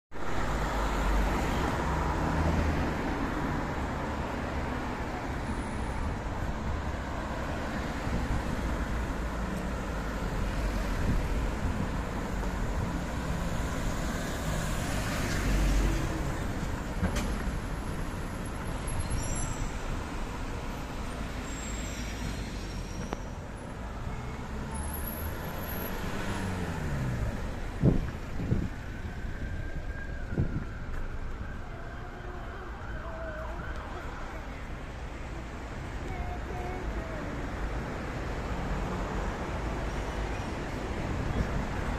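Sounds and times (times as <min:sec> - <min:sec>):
cars driving past: 0:00.3 - 0:29.0.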